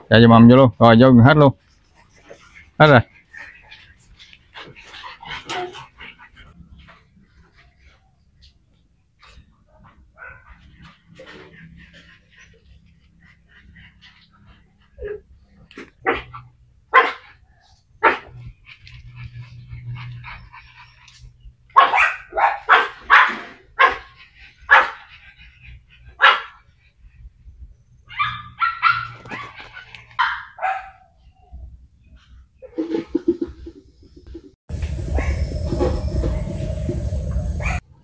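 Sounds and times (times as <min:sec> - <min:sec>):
dogs barking: 0:09.8 - 0:15.2, 0:16.0 - 0:17.4, 0:18.0 - 0:18.4, 0:19.2 - 0:25.2, 0:26.1 - 0:26.7, 0:28.1 - 0:31.2, 0:34.8 - 0:36.5, 0:37.4 - 0:37.8.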